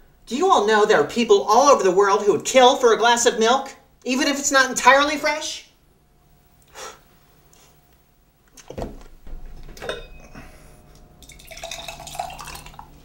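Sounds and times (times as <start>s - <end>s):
lumpy milk being poured: 11.2s - 13.0s.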